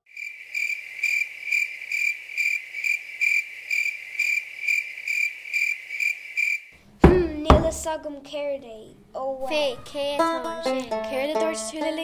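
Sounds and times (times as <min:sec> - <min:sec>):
cricket chirping: 0:00.0 - 0:06.8.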